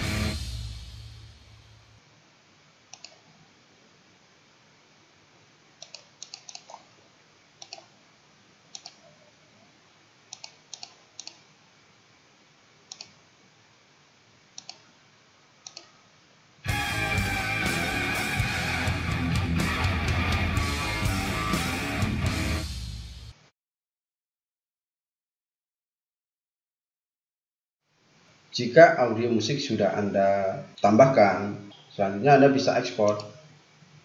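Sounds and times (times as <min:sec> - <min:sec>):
faint steady hiss: 0:00.0 - 0:16.7, 0:27.8 - 0:34.0
computer mouse clicking: 0:02.9 - 0:03.3, 0:05.8 - 0:06.9, 0:07.6 - 0:07.9, 0:08.7 - 0:09.2, 0:10.3 - 0:11.5, 0:12.9 - 0:13.2, 0:14.6 - 0:14.9, 0:15.6 - 0:16.0.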